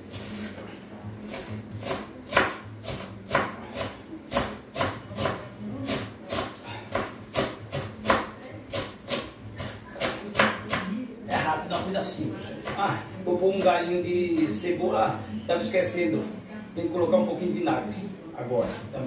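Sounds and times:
knife chopping herbs on wooden board: 0:01.3 - 0:11.9, 0:12.6 - 0:14.7.

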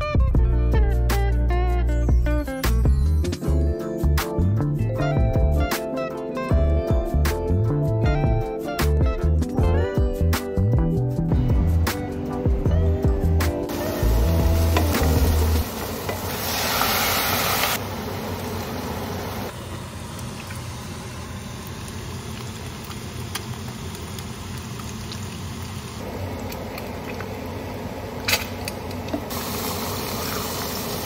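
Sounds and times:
food sizzling in pans: 0:13.7 - 0:26.0, 0:29.2 - 0:31.0.

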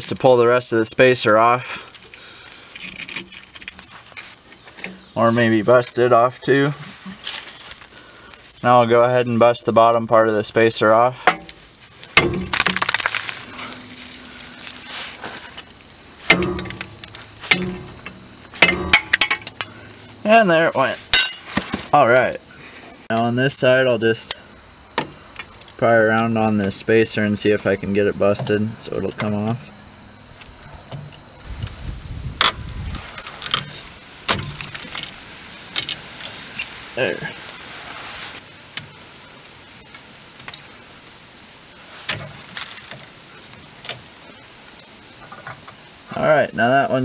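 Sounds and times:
sharp metal knocks: 0:11.2 - 0:11.6, 0:12.2 - 0:12.9, 0:16.2 - 0:19.7, 0:21.2 - 0:21.7, 0:34.3 - 0:34.8
rusted metal cracking: 0:11.3 - 0:19.8, 0:21.1 - 0:21.8, 0:32.4 - 0:37.0
sharp metallic clicks: 0:15.7 - 0:19.7.

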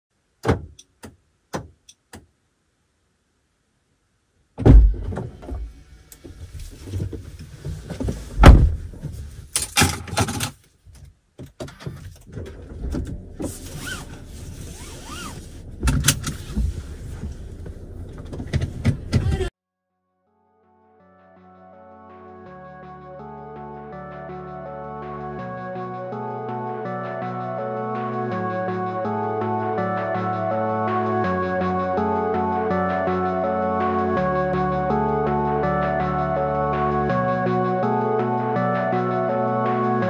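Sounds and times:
car door and seat thuds: 0:00.4 - 0:02.2, 0:04.6 - 0:09.2, 0:15.0 - 0:19.5.

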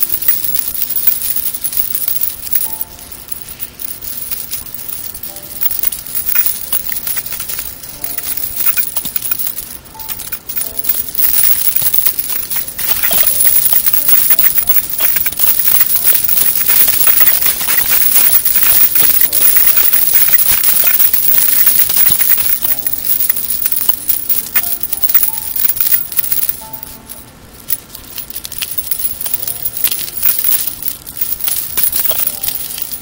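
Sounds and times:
earrings jingling: 0:00.0 - 0:33.0.

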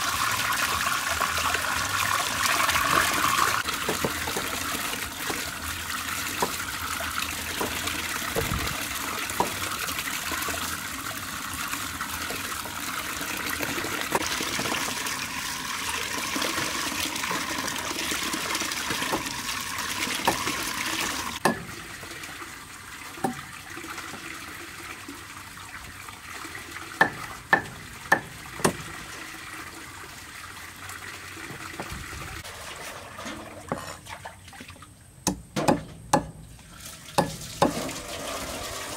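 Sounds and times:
tap water pouring into basin: 0:00.0 - 0:34.9, 0:36.5 - 0:38.9
cleaver chopping on wooden block: 0:35.2 - 0:36.4.

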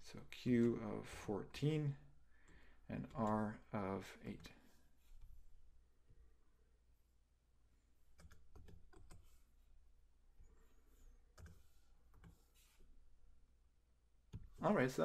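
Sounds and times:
keyboard and mouse clicks: 0:08.1 - 0:09.4, 0:11.3 - 0:12.5, 0:14.3 - 0:14.6.

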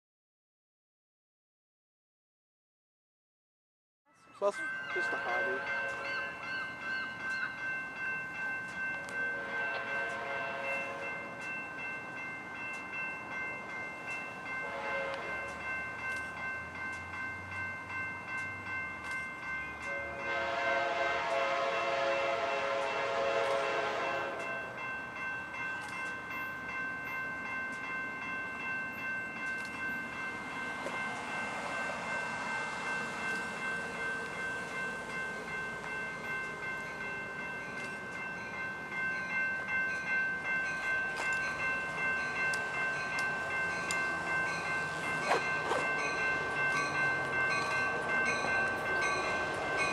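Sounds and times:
crossing bell ringing: 0:04.1 - 0:49.9
train rumble: 0:04.4 - 0:49.9
train horn blasts: 0:05.0 - 0:06.3, 0:09.1 - 0:11.2, 0:14.6 - 0:15.5, 0:19.9 - 0:24.7.

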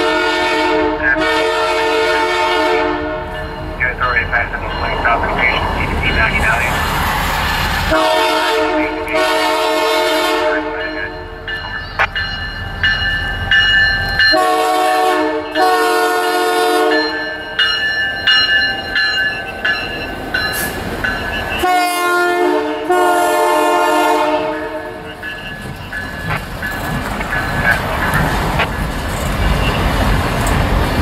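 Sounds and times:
locomotive air horn blasts: 0:00.0 - 0:03.3, 0:07.9 - 0:11.0, 0:14.3 - 0:17.2, 0:21.6 - 0:25.1
boxcars rolling past: 0:03.2 - 0:09.0, 0:24.4 - 0:31.0.

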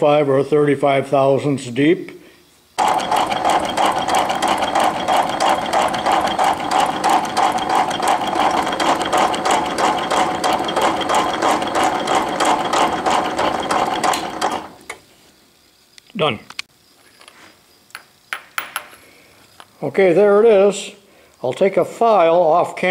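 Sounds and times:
metal shaper clattering: 0:02.8 - 0:14.8
machine whine: 0:02.8 - 0:15.0.

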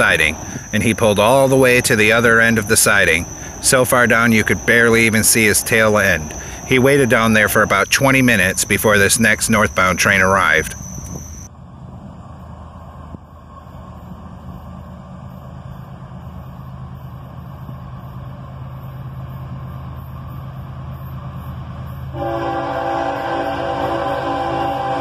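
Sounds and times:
locomotive engine drone: 0:00.0 - 0:25.0
locomotive air horn chord: 0:22.1 - 0:25.0.

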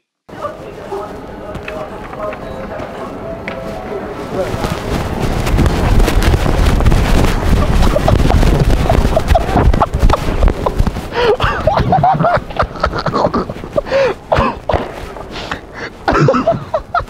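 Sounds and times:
footsteps: 0:00.3 - 0:17.0
running footfalls: 0:04.2 - 0:17.0
wind buffeting the microphone: 0:04.2 - 0:17.0.

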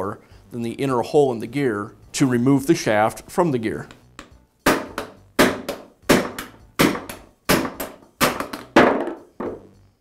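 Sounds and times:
hammer striking metal: 0:04.6 - 0:08.6.

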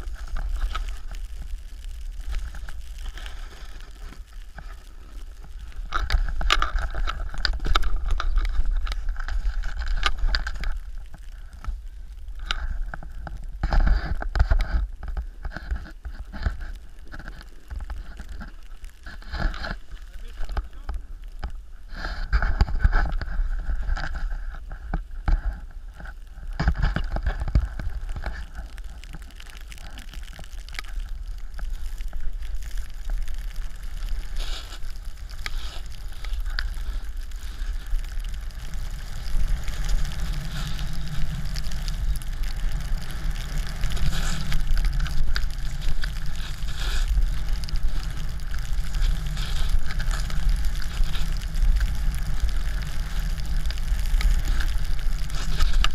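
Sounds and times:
wind rumbling on microphone: 0:00.0 - 0:55.9
snowboard scraping on snow: 0:19.2 - 0:20.9, 0:31.0 - 0:55.9.

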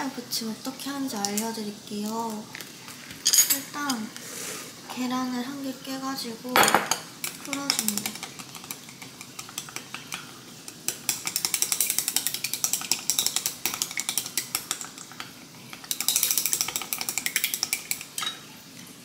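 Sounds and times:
chopsticks ticking against glass: 0:11.0 - 0:15.0, 0:15.8 - 0:18.2.

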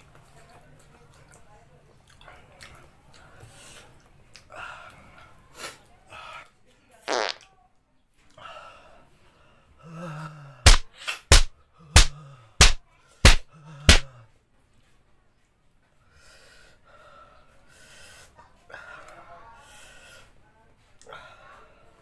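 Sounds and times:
sharp smacks: 0:10.7 - 0:14.1.

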